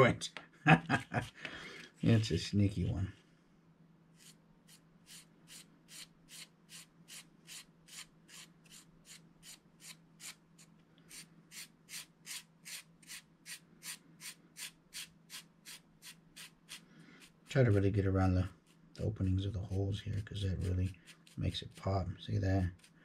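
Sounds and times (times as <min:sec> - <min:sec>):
paintbrush strokes on foam: 0:04.2 - 0:10.4, 0:11.1 - 0:23.0.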